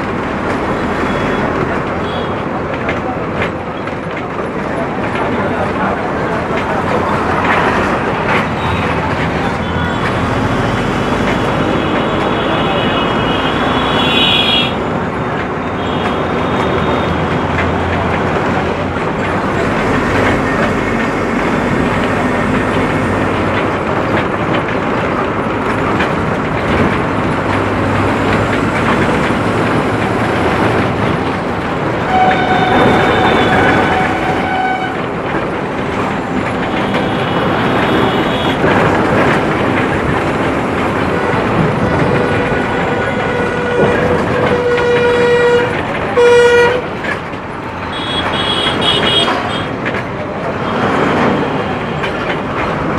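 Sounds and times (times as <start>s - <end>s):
bus body rattling: 0.0s - 52.9s
bus engine running: 0.0s - 52.9s
vehicle horns: 0.8s - 2.5s, 8.6s - 14.9s, 15.6s - 17.6s, 32.0s - 35.1s, 36.7s - 38.9s, 41.1s - 47.0s, 47.8s - 49.8s.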